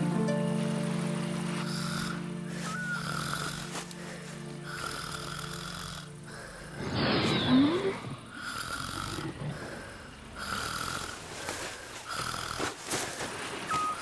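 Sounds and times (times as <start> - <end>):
rising whistle in snore: 1.7 - 3.6, 6.8 - 9.5
cartoon snoring: 1.7 - 3.8, 4.6 - 11.3, 12.1 - 12.6.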